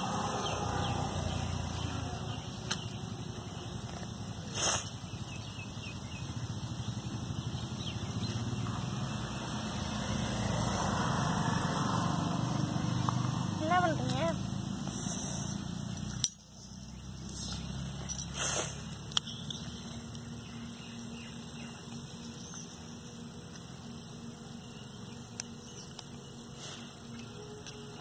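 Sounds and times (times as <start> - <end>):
low motor hum: 0.0 - 28.0.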